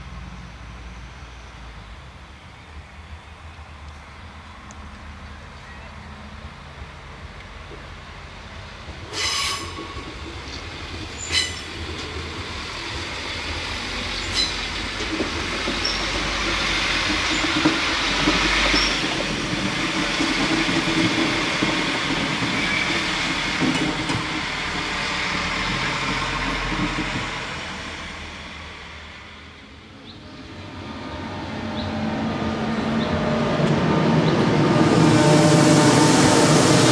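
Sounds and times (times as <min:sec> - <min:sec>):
train rolling past: 0:00.0 - 0:36.9
high-pitched train toots: 0:09.1 - 0:10.1, 0:11.2 - 0:11.7, 0:14.2 - 0:14.7, 0:30.2 - 0:36.9
high wheel squeals: 0:11.2 - 0:11.7, 0:14.2 - 0:14.7
wheels clicking over rail joints: 0:12.9 - 0:24.4.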